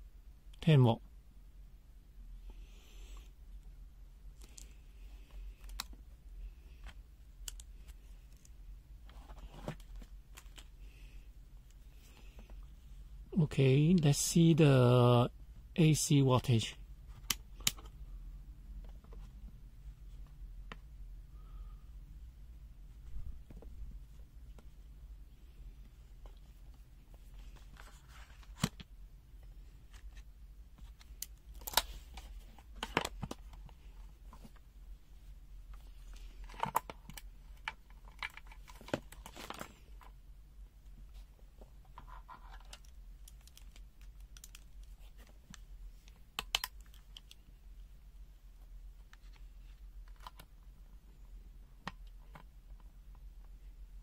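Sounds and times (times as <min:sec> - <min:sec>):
multimeters and test leads clicking: 0:42.7 - 0:45.0.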